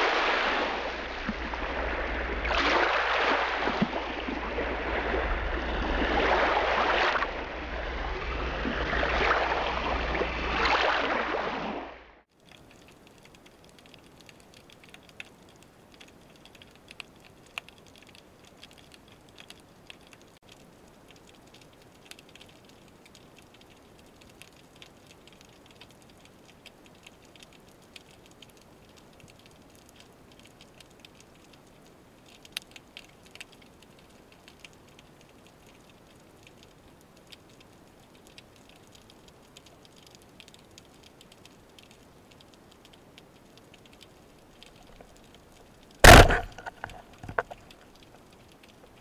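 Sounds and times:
small clicks and crackles: 0:12.2 - 0:49.0.

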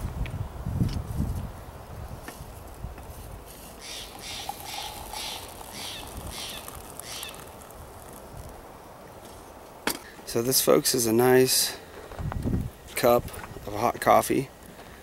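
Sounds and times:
coffee pouring into mug: 0:03.9 - 0:08.2.

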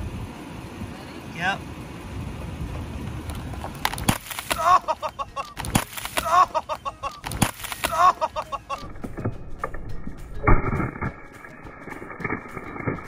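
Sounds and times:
car rolling rumble: 0:00.0 - 0:13.0
plastic ice pack cracking: 0:03.6 - 0:04.8, 0:05.4 - 0:06.5, 0:07.1 - 0:08.2.

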